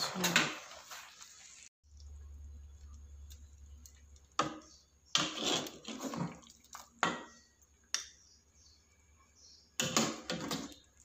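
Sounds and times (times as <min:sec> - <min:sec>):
low steady hum: 0:01.9 - 0:05.1
ladle scraping a metal pot: 0:05.1 - 0:07.2.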